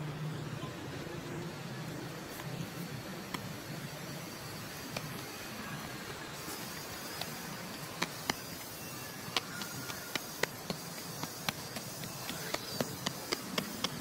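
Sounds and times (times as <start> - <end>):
outdoor background hiss: 0.0 - 14.0
sharp clicks: 6.4 - 14.0.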